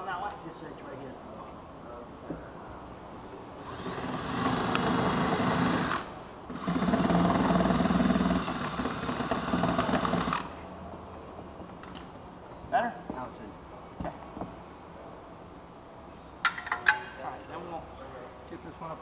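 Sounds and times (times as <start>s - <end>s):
cordless drill running: 3.6s - 10.6s.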